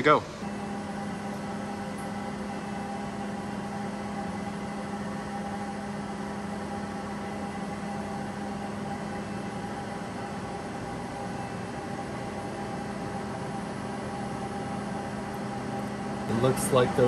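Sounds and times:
electrical hum with tones: 0.0 - 17.0.

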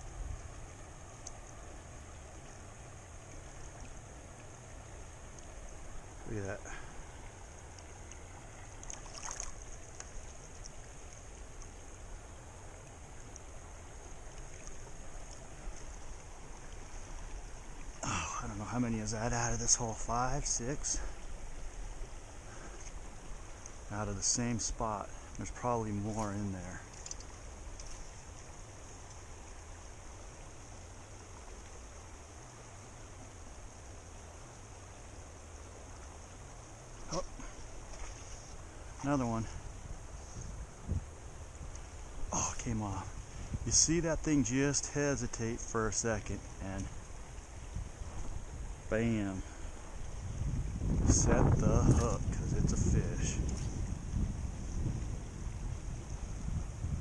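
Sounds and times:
river running over rocks: 0.0 - 53.2
water splash: 8.0 - 11.8.

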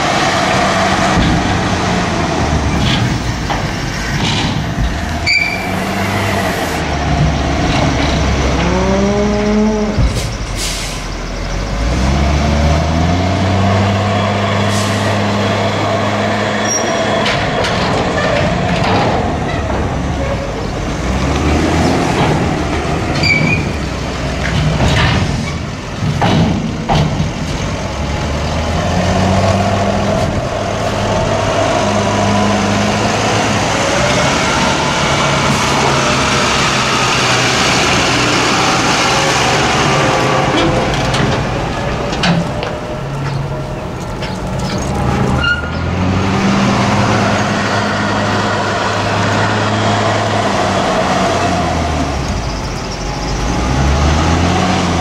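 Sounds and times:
tractor diesel engine revving: 0.0 - 55.0.

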